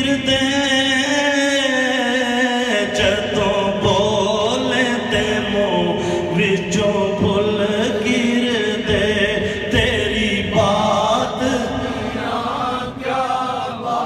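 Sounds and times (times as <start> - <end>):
group chanting: 10.3 - 14.0.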